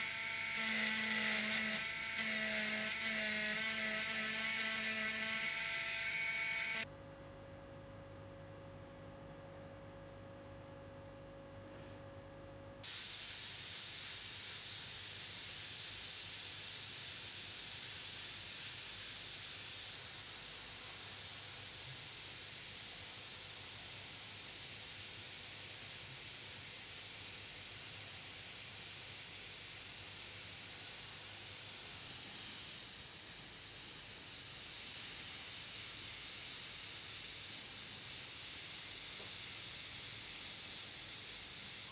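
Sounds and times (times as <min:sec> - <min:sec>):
electric eraser whirring: 0:00.0 - 0:06.9
airbrush air hiss: 0:12.8 - 0:41.9.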